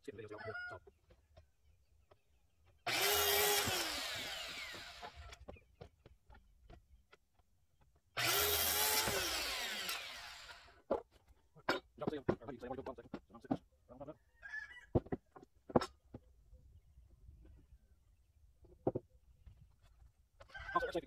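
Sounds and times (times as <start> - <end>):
saw motor winding down: 2.9 - 5.3, 8.2 - 10.8
circular saw cutting board: 2.9 - 5.4, 8.2 - 10.8.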